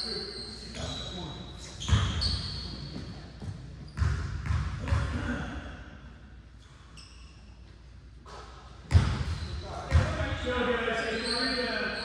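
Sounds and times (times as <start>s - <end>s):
sneaker squeaks: 0.0s - 5.0s, 6.6s - 10.2s, 11.0s - 12.0s
basketball bouncing on wooden floor: 2.9s - 5.1s, 8.9s - 10.2s.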